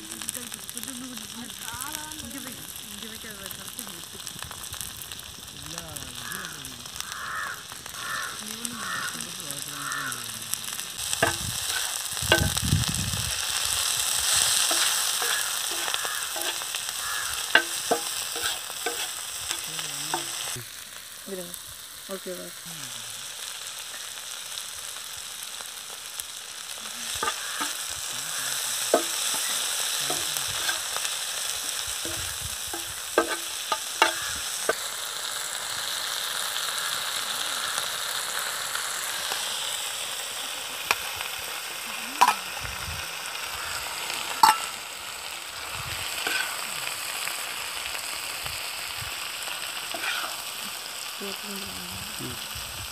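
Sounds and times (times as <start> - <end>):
vegetables sizzling in iron pan: 0.0 - 52.9
steel spatula clicking on iron: 32.0 - 34.3.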